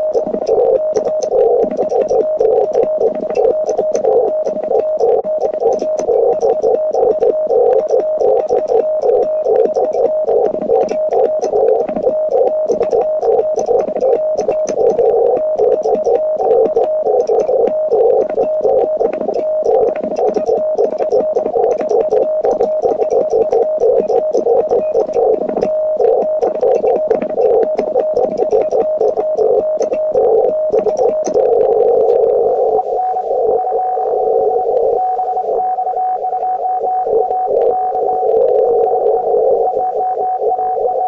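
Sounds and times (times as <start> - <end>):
morse code beeps: 0.0 - 41.0
thin steady tone: 0.0 - 41.0
telegraph key clicking: 0.1 - 31.8.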